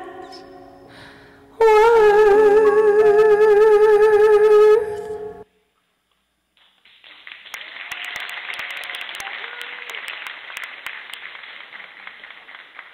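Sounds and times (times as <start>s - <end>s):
audience applause: 6.8s - 12.9s.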